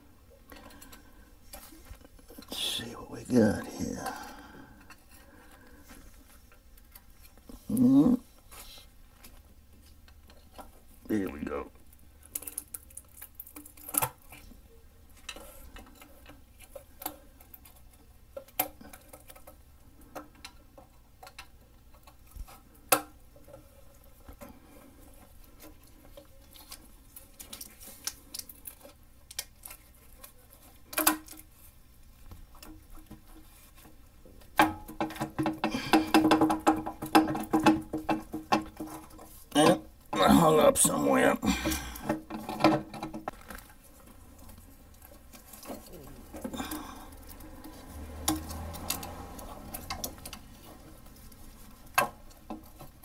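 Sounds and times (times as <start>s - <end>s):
clicks and taps of prying metal: 34.6s - 39.1s.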